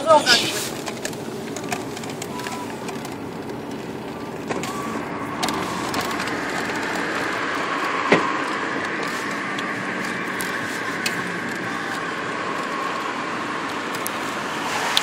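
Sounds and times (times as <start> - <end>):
road and engine noise in car: 0.0 - 15.0.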